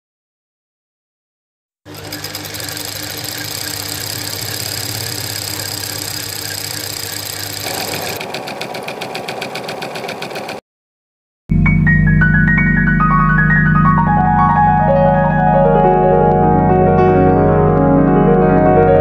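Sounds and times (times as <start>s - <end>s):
sewing machine running: 1.9s - 10.6s.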